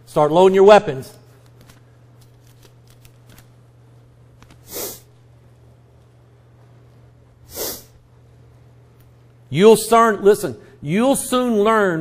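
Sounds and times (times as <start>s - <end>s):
short breaths or sniffs: 4.6s - 5.1s, 7.5s - 8.0s.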